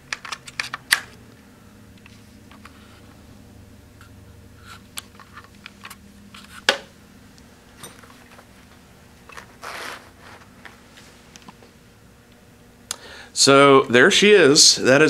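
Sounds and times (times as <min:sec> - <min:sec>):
brushing rustle: 0:09.4 - 0:11.3.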